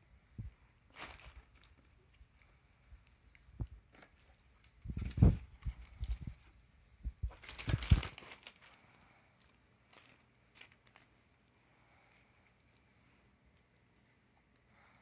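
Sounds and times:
plastic wrapping crinkle: 0.9s - 6.6s, 7.2s - 12.9s
cloth rustling and bumps: 7.0s - 8.5s.

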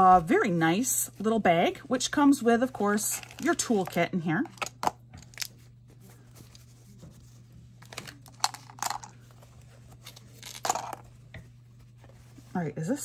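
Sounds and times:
steady low hum: 0.0s - 13.0s
plastic packets handled: 3.0s - 5.7s, 7.8s - 11.0s.

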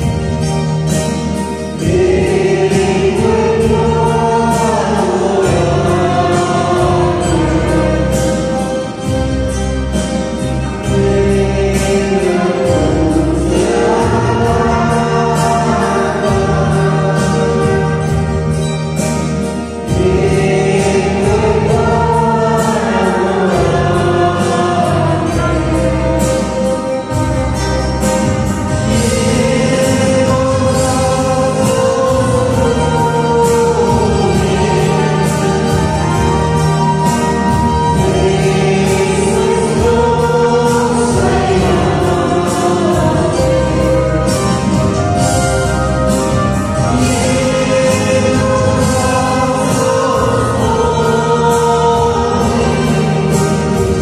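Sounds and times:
choir singing: 0.0s - 54.0s
instrumental music with steady beat: 0.0s - 54.0s.

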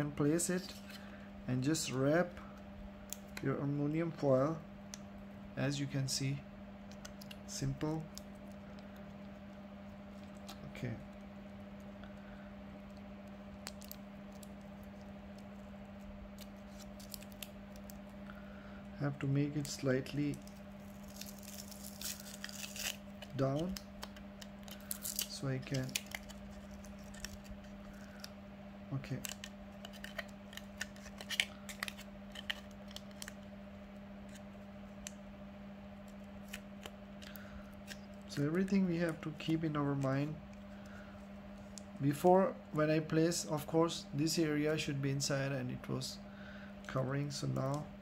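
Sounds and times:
steady low hum: 0.0s - 48.0s
aluminium foil crinkling: 16.3s - 18.1s, 19.6s - 28.3s, 29.1s - 33.4s.

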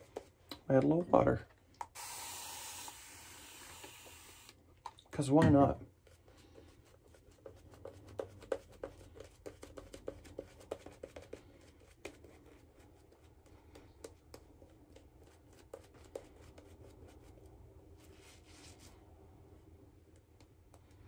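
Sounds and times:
shaving brush squishing lather: 6.0s - 18.9s.

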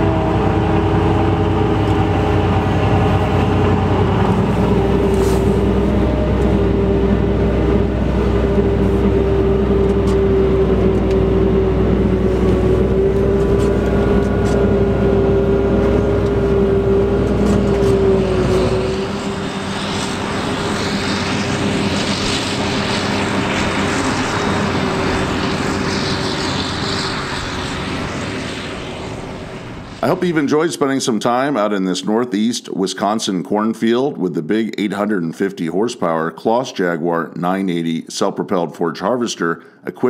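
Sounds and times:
tractor engine hum: 0.0s - 31.0s.

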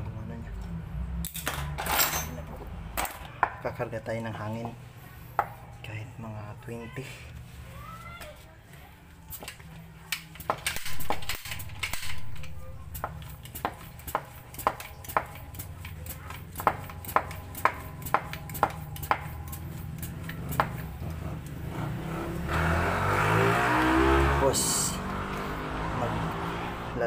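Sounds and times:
air pump clicking strokes: 10.2s - 21.6s.

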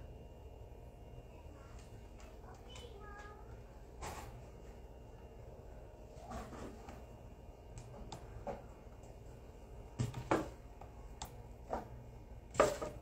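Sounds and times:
objects knocking and clattering: 10.0s - 10.6s, 11.7s - 13.0s.

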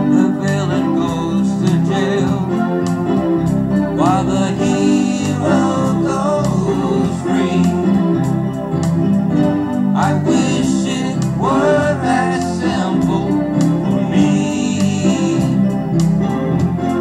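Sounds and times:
man singing: 0.0s - 2.9s, 4.0s - 8.1s, 10.0s - 15.8s
electronic keyboard chords: 0.0s - 17.0s.

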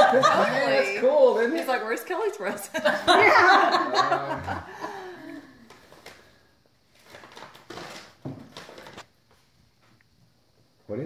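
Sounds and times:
paper crinkling: 6.9s - 9.1s.

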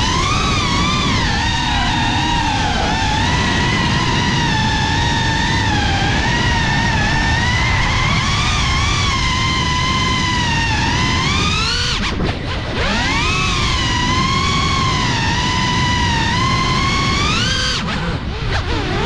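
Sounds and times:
low rumble: 0.0s - 12.8s
quadcopter motors whining: 0.0s - 19.0s.

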